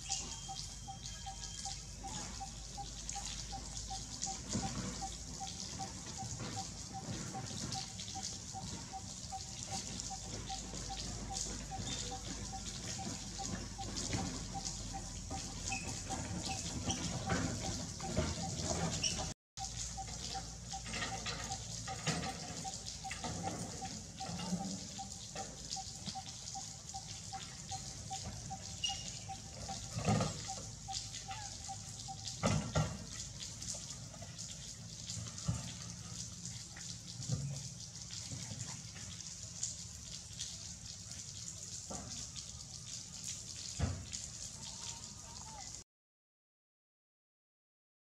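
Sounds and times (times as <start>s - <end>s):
rain patter: 0.0s - 45.8s
water dripping: 0.0s - 45.8s.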